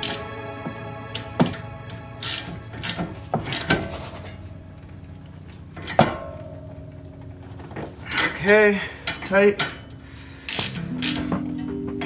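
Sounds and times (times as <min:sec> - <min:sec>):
ratchet wrench clicking: 0:10.4 - 0:11.3.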